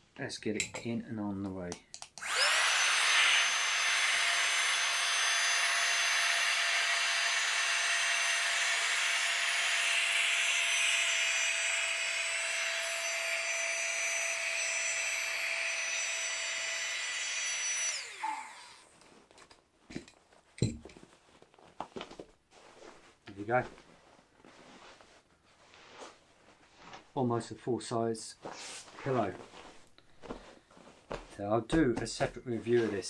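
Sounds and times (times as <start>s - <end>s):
air pump whining: 2.2s - 18.9s.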